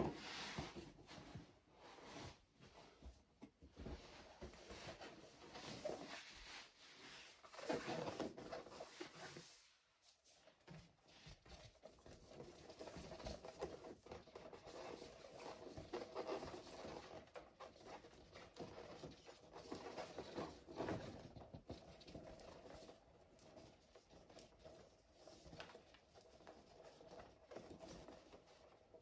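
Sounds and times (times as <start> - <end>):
balloons rubbing and rustling: 4.4 - 10.3.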